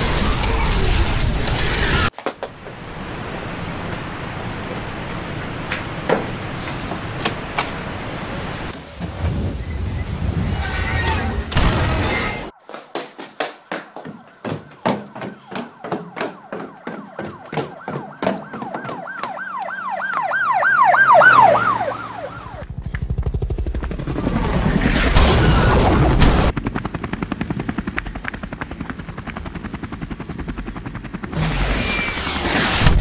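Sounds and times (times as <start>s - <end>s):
siren sweeping: 14.1s - 22.7s.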